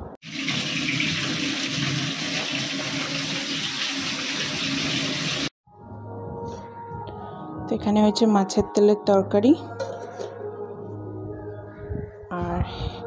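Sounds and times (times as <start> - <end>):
fish sizzling in hot oil: 0.2 - 5.5.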